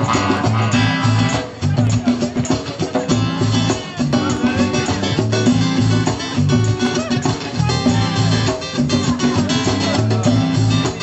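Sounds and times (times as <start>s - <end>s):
bass line: 0.0s - 11.0s
guitar: 0.0s - 11.0s.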